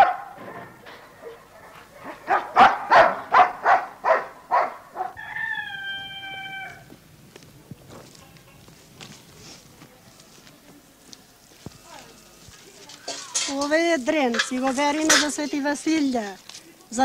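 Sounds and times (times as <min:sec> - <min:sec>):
dog barking: 0:00.0 - 0:05.2.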